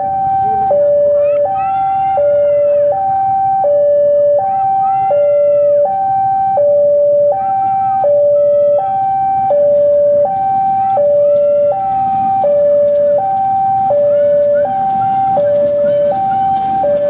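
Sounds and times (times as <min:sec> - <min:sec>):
diesel locomotive running: 0:00.0 - 0:17.0
two-tone crossing alarm: 0:00.0 - 0:17.0
wheel squeals: 0:05.2 - 0:17.0.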